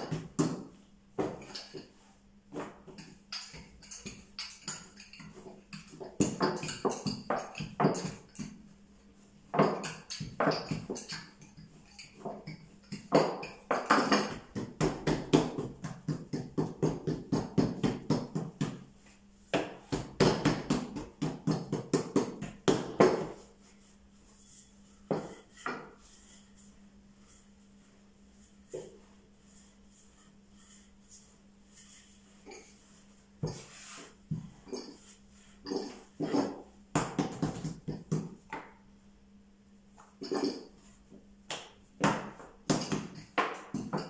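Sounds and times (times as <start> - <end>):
rolling pin knocking on board: 19.5 - 23.4.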